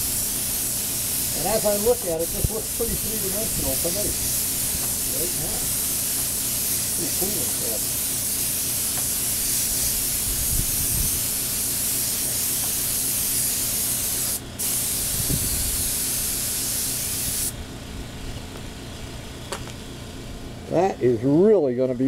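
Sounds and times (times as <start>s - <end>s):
paint spray gun hissing: 0.0s - 17.6s.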